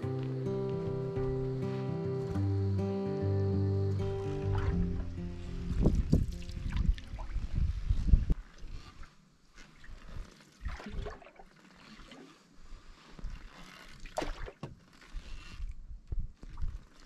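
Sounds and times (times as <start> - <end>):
paddle strokes splashing in water: 8.4 - 14.8.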